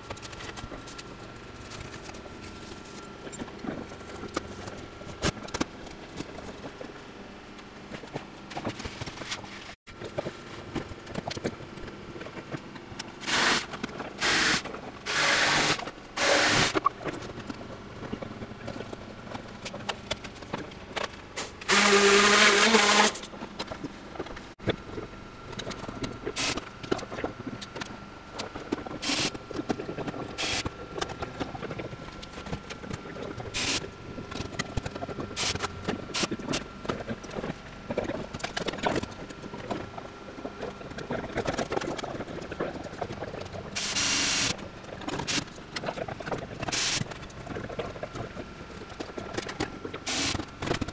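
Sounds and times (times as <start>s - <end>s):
power drill motor: 13.2s - 16.8s, 21.7s - 23.2s.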